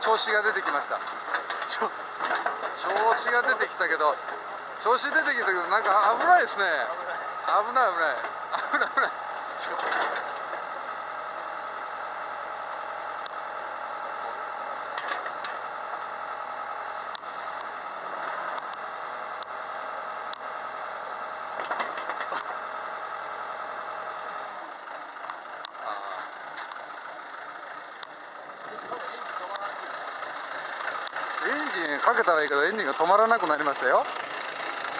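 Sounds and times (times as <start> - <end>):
excavator diesel engine running: 0.0 - 34.9
sharp clicks and knocks: 0.5 - 4.5, 14.9 - 15.6, 21.6 - 22.6.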